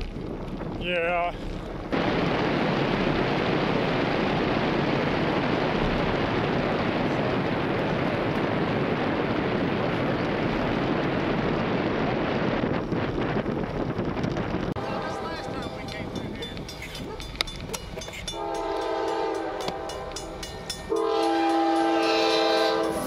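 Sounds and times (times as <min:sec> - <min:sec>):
wind rushing over microphone: 0:00.0 - 0:23.0.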